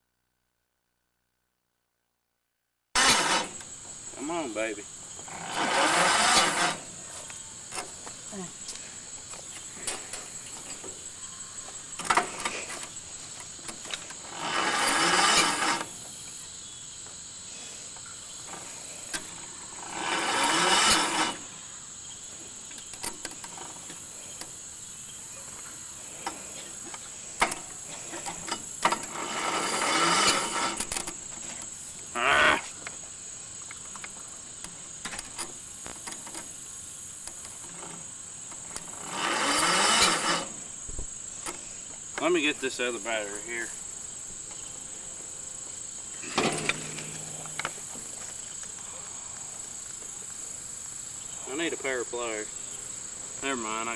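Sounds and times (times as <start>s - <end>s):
tractor engine cranking: 3.0s - 16.4s, 18.4s - 21.5s, 22.6s - 24.6s, 26.0s - 32.1s, 33.8s - 43.8s, 46.2s - 48.5s.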